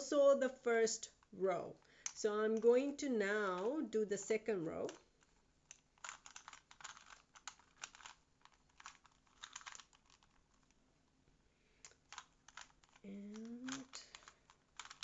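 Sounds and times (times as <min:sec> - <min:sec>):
plastic puzzle cube clicking: 0:03.5 - 0:10.8, 0:11.8 - 0:15.0.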